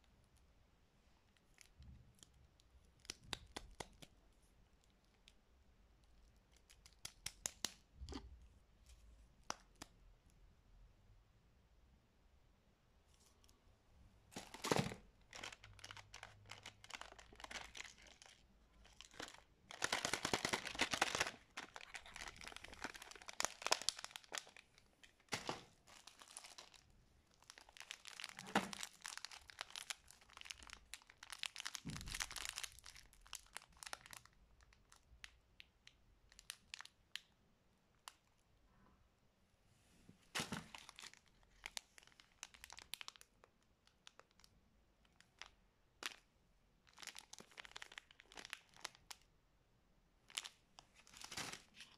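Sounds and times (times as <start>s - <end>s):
plastic wrappers crinkling: 14.3s - 35.0s, 40.3s - 49.3s, 50.3s - 51.9s.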